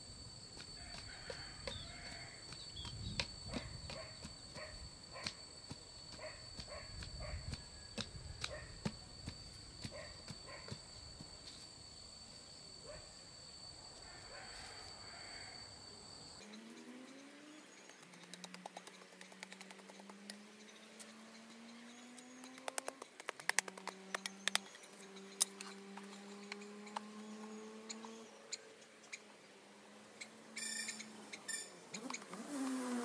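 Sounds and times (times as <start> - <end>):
hand tool striking soil: 0.6 - 4.4, 5.2 - 10.8.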